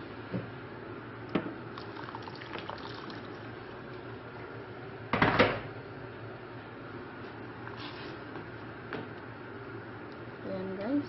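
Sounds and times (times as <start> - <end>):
water poured into sauce: 1.7 - 4.0.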